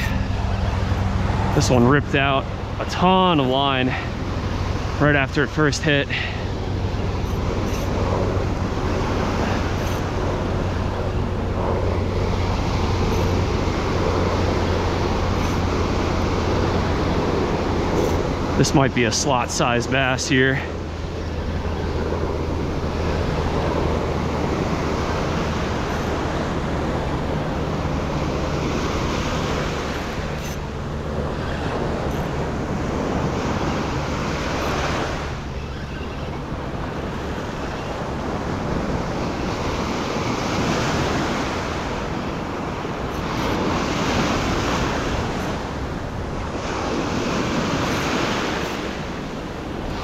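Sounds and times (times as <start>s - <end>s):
ocean surf breaking on beach: 0.0s - 50.0s.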